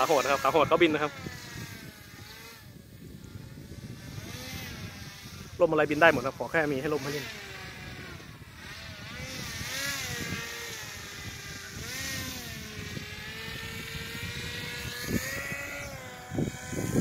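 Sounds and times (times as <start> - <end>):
small propeller motor: 0.0 - 17.0.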